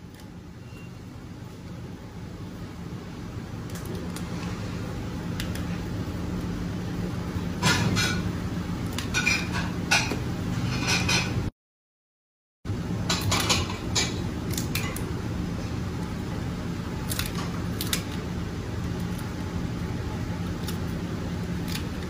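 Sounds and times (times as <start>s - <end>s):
steady background hum: 0.0s - 11.5s, 12.7s - 22.0s
lobster shells cracking: 3.5s - 4.4s, 5.3s - 5.8s, 13.1s - 15.1s, 16.9s - 19.5s, 20.4s - 22.0s.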